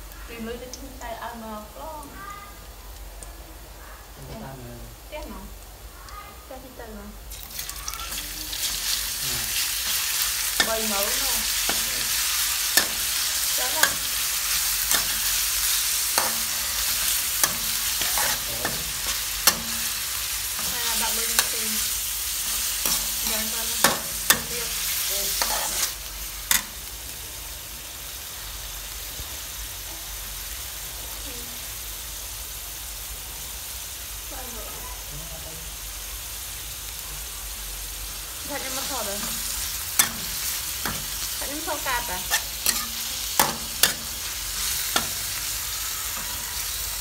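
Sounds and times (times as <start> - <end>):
meat sizzling in a wok: 0.0 - 47.0
utensil scraping a wok: 7.3 - 26.8, 38.5 - 47.0.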